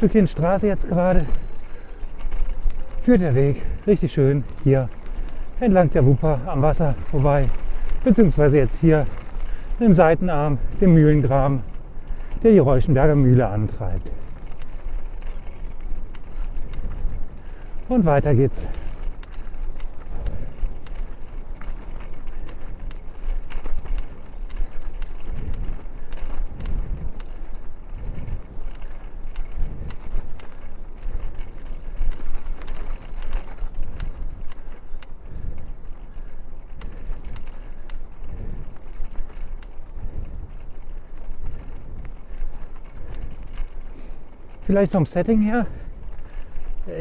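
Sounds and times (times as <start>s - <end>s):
bike clicks and rattles: 0.0s - 47.0s
rumble of wind and tyres: 0.0s - 47.0s.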